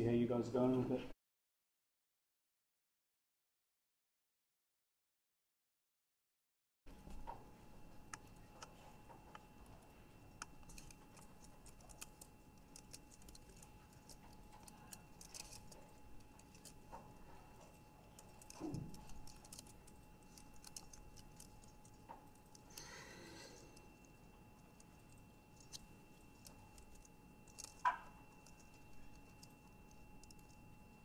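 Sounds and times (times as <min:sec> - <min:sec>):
faint steady hum: 0:06.9 - 0:31.0.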